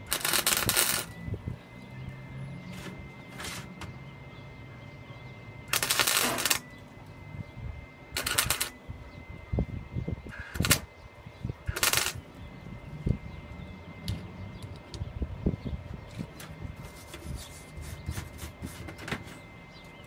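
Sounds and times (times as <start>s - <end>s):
welder arc crackling: 0.0s - 1.3s, 5.6s - 7.0s, 8.1s - 8.8s, 10.3s - 11.0s, 11.6s - 12.4s.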